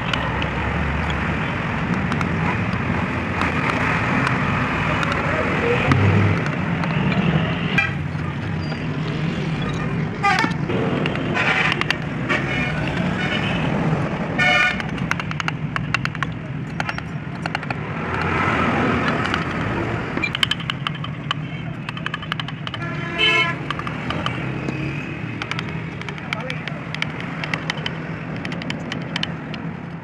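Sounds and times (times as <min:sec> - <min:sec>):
traffic rumble: 0:00.0 - 0:30.0
vehicle horns tooting: 0:14.4 - 0:14.9, 0:22.8 - 0:23.7
chisel clicking on wood: 0:14.8 - 0:18.4, 0:19.0 - 0:22.9, 0:23.6 - 0:24.7, 0:25.3 - 0:29.7.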